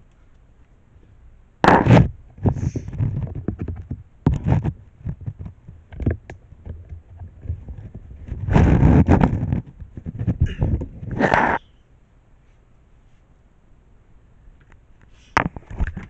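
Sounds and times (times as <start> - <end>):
handling noise on microphone: 1.6 - 11.6, 15.2 - 16.0.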